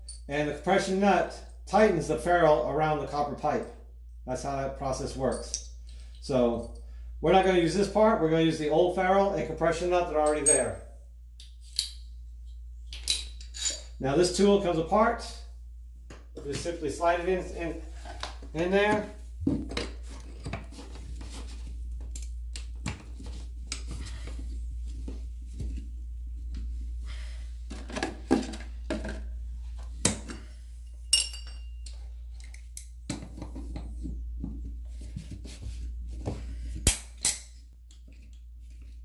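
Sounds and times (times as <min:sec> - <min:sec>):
metal tools clinking and scraping: 0:10.2 - 0:10.8, 0:13.0 - 0:14.0.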